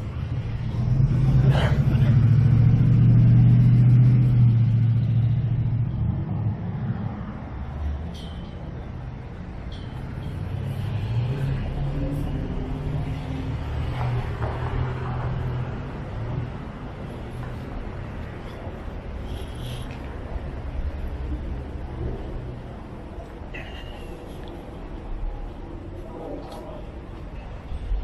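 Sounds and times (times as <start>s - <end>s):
vehicle engine passing close by: 0.0s - 8.4s, 9.9s - 22.7s
another vehicle approaching: 0.0s - 28.0s.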